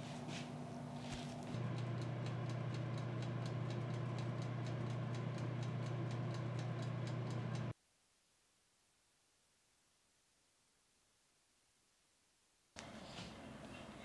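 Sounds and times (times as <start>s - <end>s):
electric oven humming: 0.0s - 7.8s
fast even ticking: 1.6s - 7.7s.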